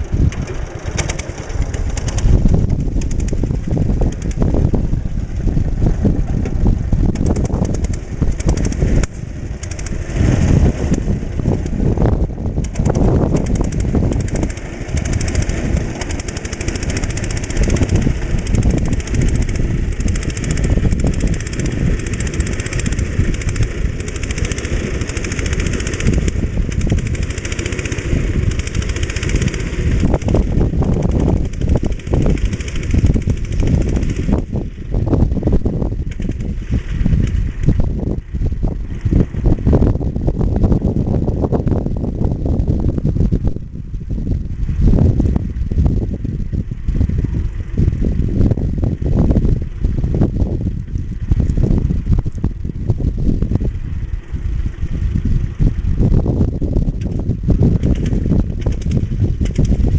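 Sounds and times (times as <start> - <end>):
tractor engine running under load: 0.0 - 59.9.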